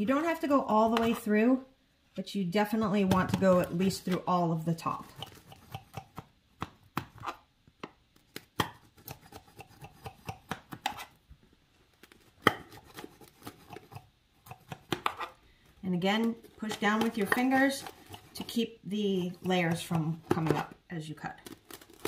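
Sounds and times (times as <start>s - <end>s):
knife cutting pastry layers: 8.3s - 11.2s, 12.0s - 15.4s, 16.2s - 18.6s.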